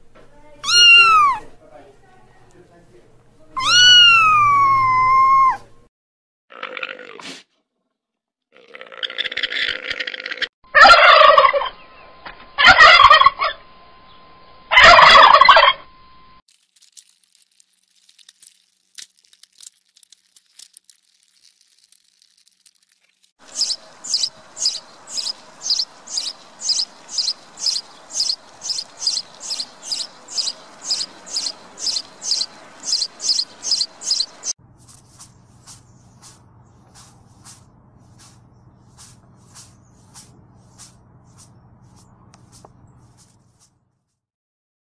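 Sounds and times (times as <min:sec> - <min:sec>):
turkeys gobbling: 0:10.8 - 0:11.8, 0:12.6 - 0:13.6, 0:14.7 - 0:15.8.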